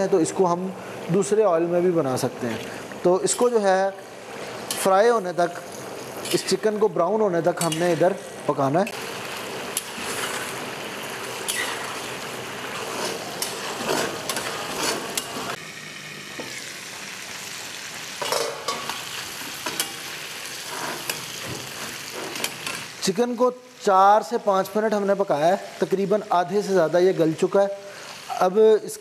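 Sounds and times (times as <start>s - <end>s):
chicken sizzling in oil: 7.5s - 29.0s
metal utensil scraping pan: 11.4s - 15.6s, 18.2s - 22.9s.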